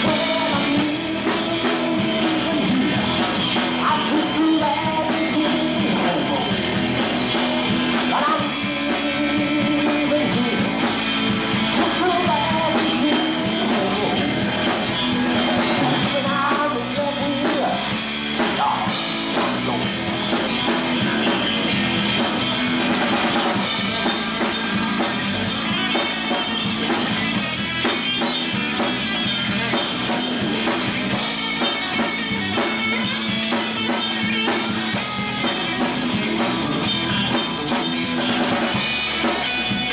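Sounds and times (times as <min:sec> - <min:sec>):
man singing: 0:00.0 - 0:06.7, 0:08.0 - 0:11.0, 0:11.6 - 0:14.5, 0:15.6 - 0:20.0
drum kit: 0:00.0 - 0:39.9
electric bass: 0:00.0 - 0:39.9
electric guitar: 0:00.0 - 0:39.9.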